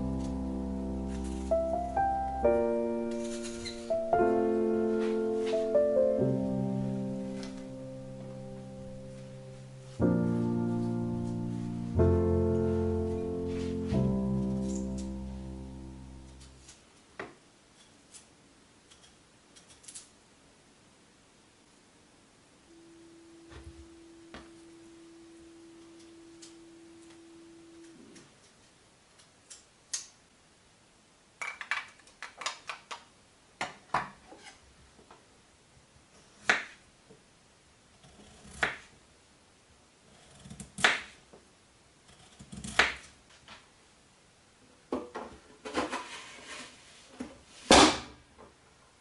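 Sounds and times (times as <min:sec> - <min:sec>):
faint steady hum: 0:00.0 - 0:46.0
knife cutting potatoes on board: 0:42.4 - 0:43.1.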